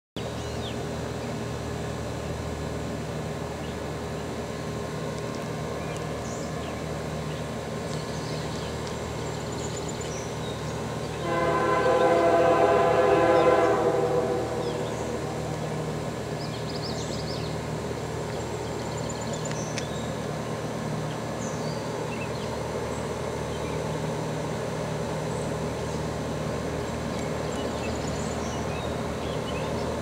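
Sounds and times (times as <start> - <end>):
diesel locomotive engine drone: 0.2 - 30.0
train air horn chord: 11.2 - 15.9.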